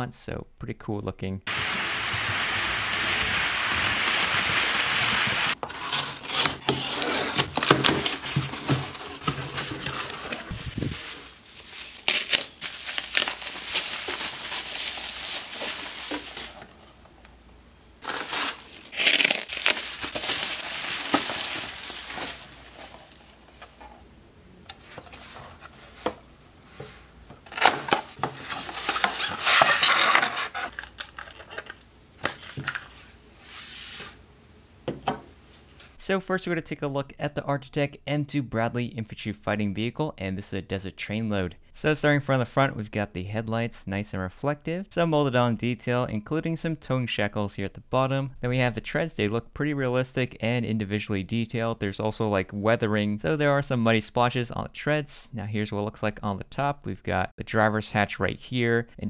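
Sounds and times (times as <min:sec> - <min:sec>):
steady hiss: 0:01.5 - 0:05.6
plastic and bubble wrap crinkling: 0:01.5 - 0:17.0, 0:18.0 - 0:23.9, 0:27.4 - 0:34.0.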